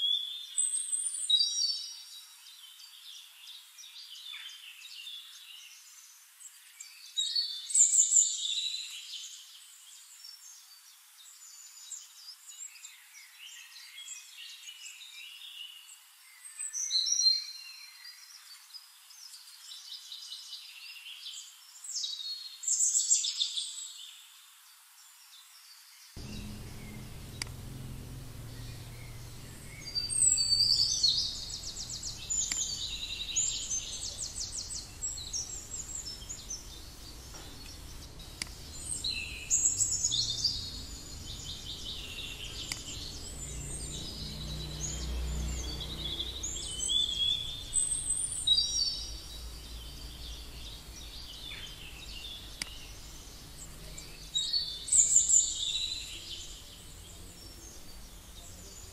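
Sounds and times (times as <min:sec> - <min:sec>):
faint hiss: 0:18.3 - 0:58.9
birds singing and chirping: 0:26.2 - 0:58.9
low background rumble: 0:26.2 - 0:58.9.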